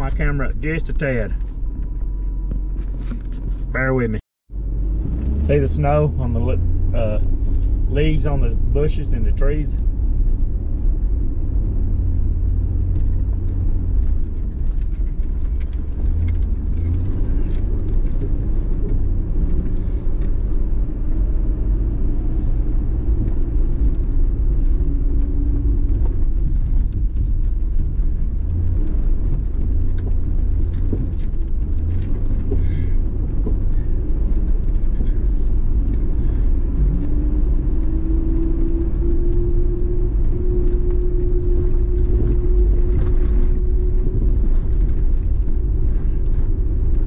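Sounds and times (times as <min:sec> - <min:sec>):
engine and road rumble: 0:00.0 - 0:47.0
light clicks and rattles: 0:12.4 - 0:20.7, 0:23.2 - 0:47.0.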